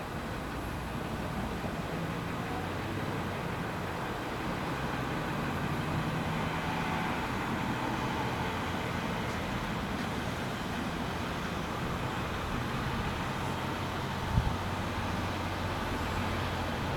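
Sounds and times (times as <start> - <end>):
truck engines humming: 0.0 - 16.9.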